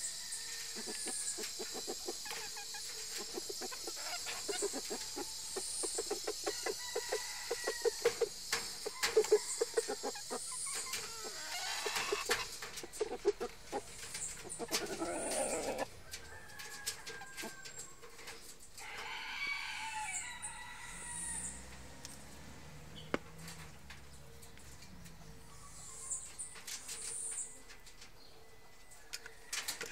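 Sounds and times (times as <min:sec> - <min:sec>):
chickens clucking: 0:00.0 - 0:29.9
rooster crowing: 0:06.4 - 0:08.3, 0:14.8 - 0:22.2.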